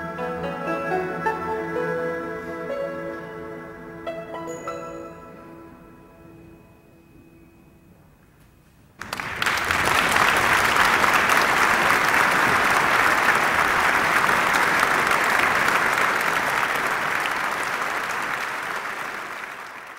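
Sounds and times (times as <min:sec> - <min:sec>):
applause: 0:09.0 - 0:19.9.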